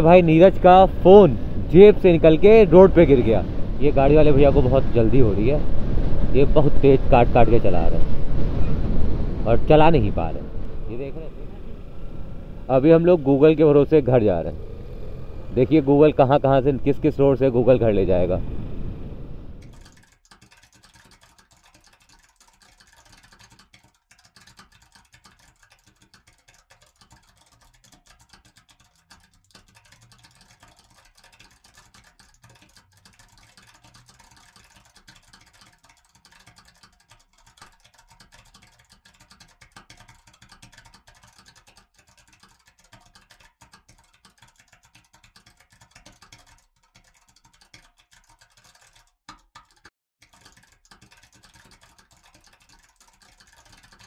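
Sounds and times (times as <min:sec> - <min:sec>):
crackly wind and road noise: 0:00.0 - 0:20.0.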